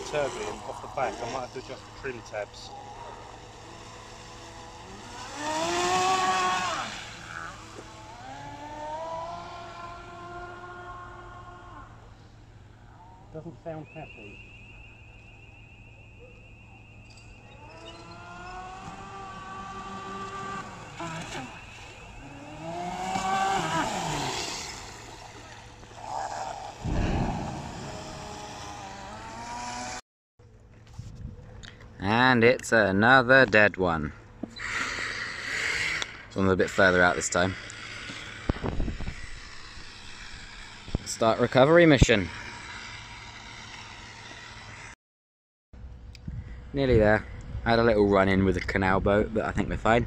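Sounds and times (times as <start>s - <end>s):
electric motor whining: 0.0s - 12.6s, 16.4s - 30.0s, 34.5s - 45.0s
brief low rumble: 26.8s - 28.8s.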